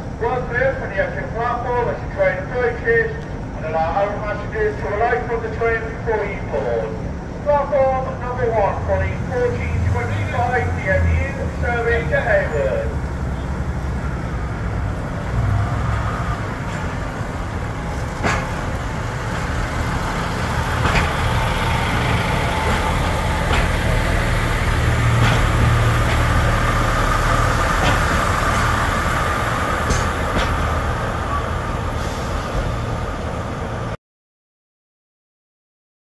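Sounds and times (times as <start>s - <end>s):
train diesel drone: 0.0s - 34.0s
wheels clicking over rail joints: 16.4s - 31.4s.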